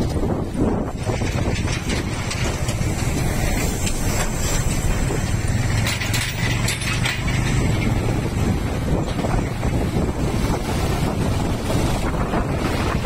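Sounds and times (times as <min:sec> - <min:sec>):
wind and tyre noise: 0:00.0 - 0:13.0
metallic rattling and clicking: 0:00.8 - 0:09.8.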